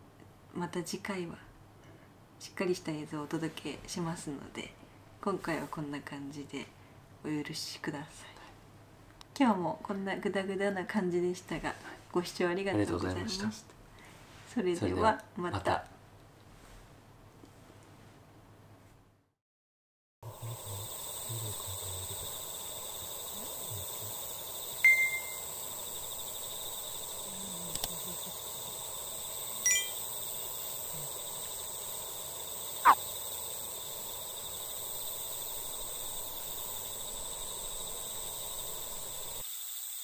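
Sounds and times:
high insect chorus: 20.2s - 40.0s.

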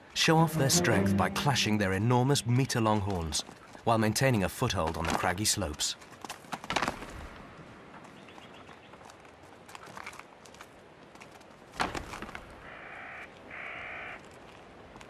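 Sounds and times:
horns clashing: 0.2s - 2.5s.

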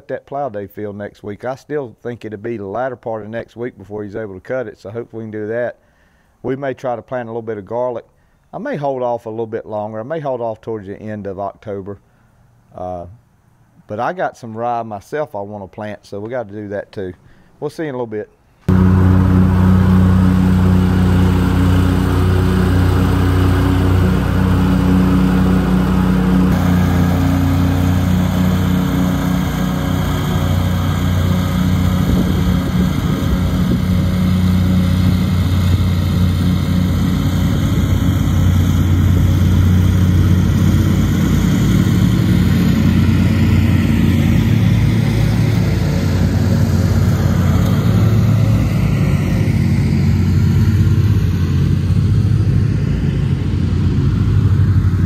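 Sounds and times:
tractor engine running: 18.7s - 55.0s.

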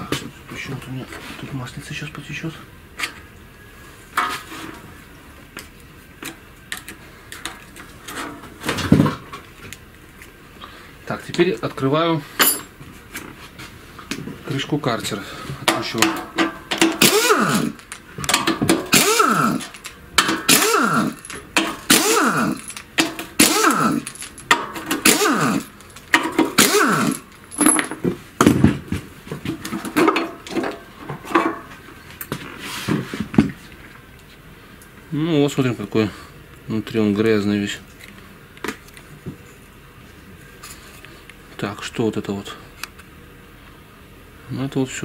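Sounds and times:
metal tools clinking on metal: 12.4s - 12.8s, 17.8s - 28.0s
pneumatic impact wrench bursts: 16.8s - 27.3s.

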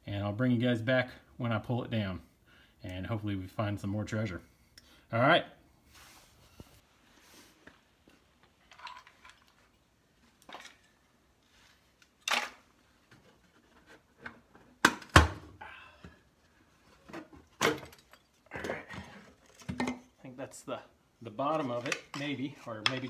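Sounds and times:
wooden pieces knocking and scraping: 8.4s - 11.0s, 21.4s - 23.0s.

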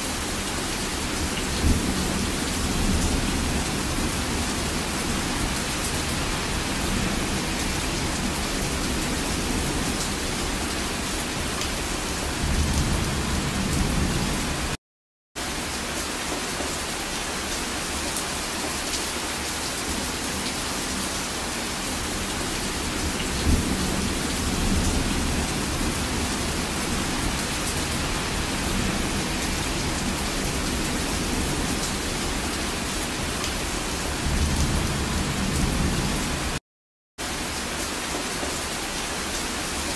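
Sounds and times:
heavy rain pouring: 0.0s - 14.8s, 15.4s - 36.6s, 37.2s - 39.9s
low thunder rumbling: 22.5s - 32.4s, 34.1s - 36.6s.

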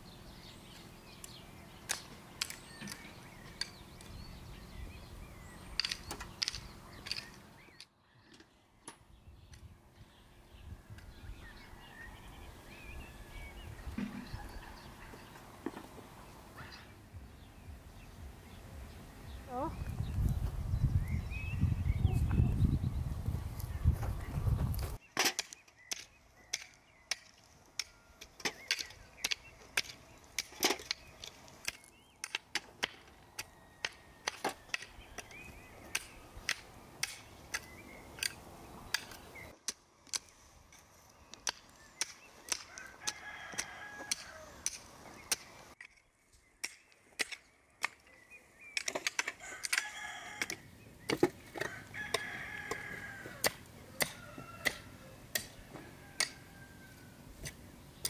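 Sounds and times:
chickens calling: 10.2s - 20.3s, 40.8s - 45.8s, 47.0s - 58.0s.

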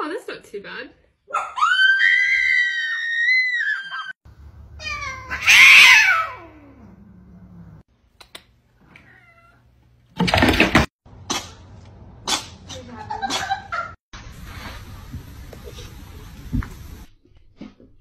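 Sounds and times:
cat yowling and growling: 1.3s - 4.1s, 4.8s - 7.8s
cat meowing: 4.8s - 6.8s, 9.0s - 9.6s.

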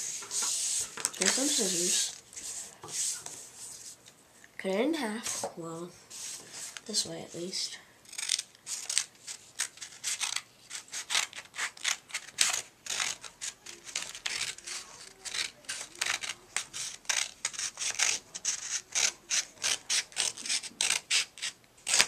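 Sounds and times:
scissors snipping paper: 1.1s - 2.2s, 8.1s - 22.0s.

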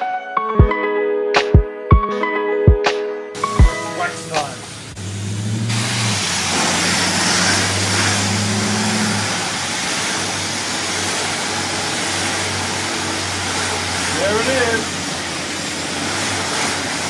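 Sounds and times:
pressure washer spray hiss: 3.4s - 17.0s.

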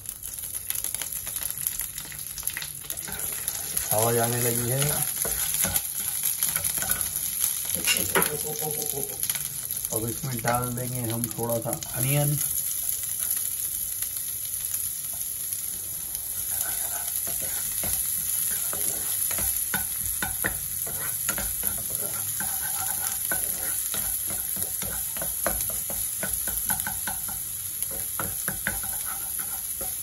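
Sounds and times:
onion sizzling in oil: 0.0s - 30.0s
spatula scraping a pan: 2.8s - 8.4s, 16.2s - 30.0s.

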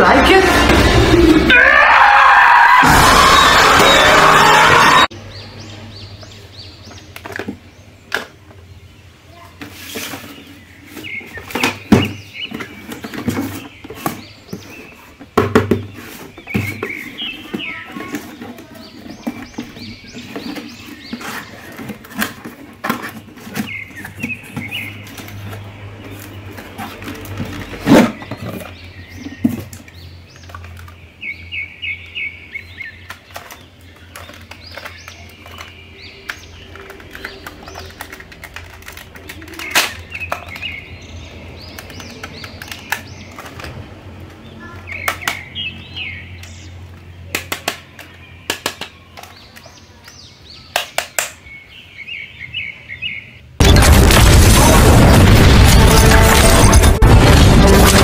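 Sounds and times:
cardboard and plastic packaging rustling: 9.5s - 31.0s, 33.0s - 40.8s.

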